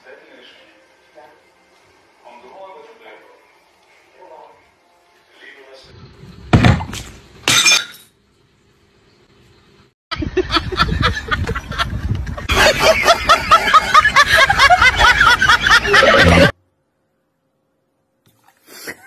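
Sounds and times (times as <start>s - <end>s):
person laughing hard: 10.2s - 16.5s.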